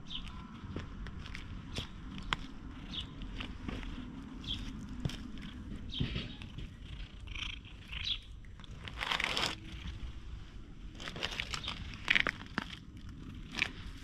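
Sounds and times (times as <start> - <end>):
hand rustling on fur: 1.2 - 7.1
cat purring: 2.1 - 14.0.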